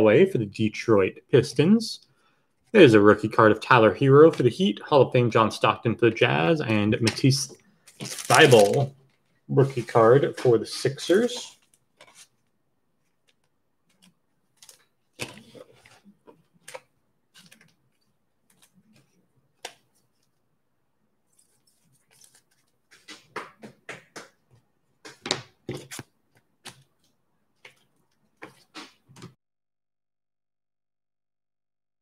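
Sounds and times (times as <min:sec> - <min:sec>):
cards being handled: 0:07.0 - 0:20.4, 0:21.3 - 0:24.4, 0:25.0 - 0:29.3
foil packs being torn open: 0:07.9 - 0:08.9.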